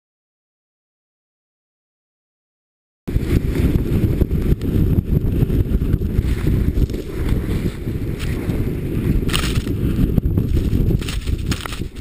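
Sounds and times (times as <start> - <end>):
wind buffeting microphone: 3.1 - 12.0.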